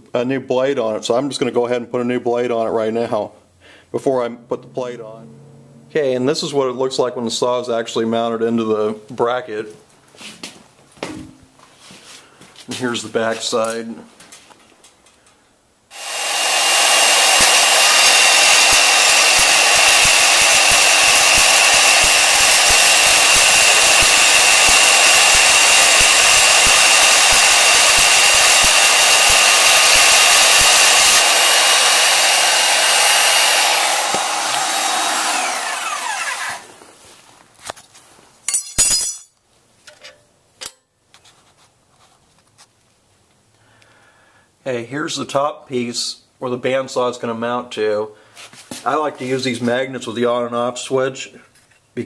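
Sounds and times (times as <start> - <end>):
band saw cutting steel: 15.9 - 36.8
motor winding down whine: 15.9 - 36.8
sharp metal clanks: 38.5 - 40.9.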